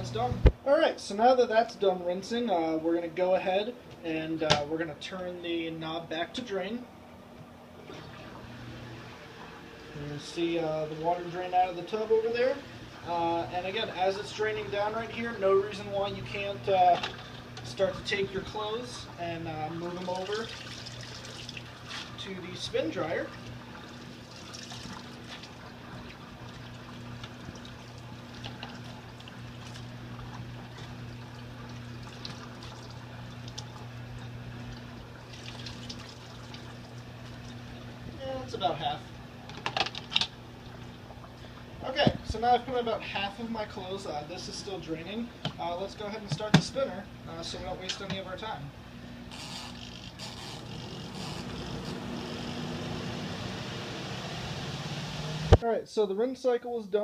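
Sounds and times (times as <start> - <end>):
spin dryer motor humming: 0.0 - 0.6, 7.0 - 55.6
water draining from washer tub: 7.8 - 38.5
wet clothes rustling: 19.8 - 22.5.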